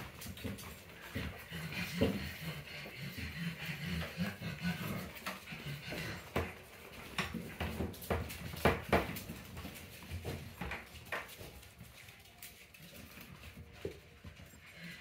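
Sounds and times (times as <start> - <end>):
puppies grunting and whimpering: 1.2 - 6.6.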